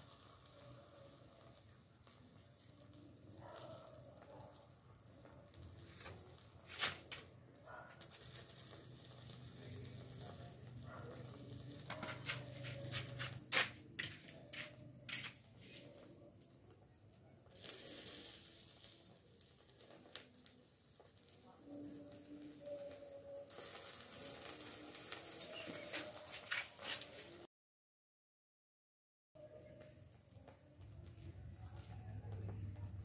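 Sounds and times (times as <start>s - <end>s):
molten metal hissing and crackling: 0.0s - 16.1s, 17.4s - 27.5s.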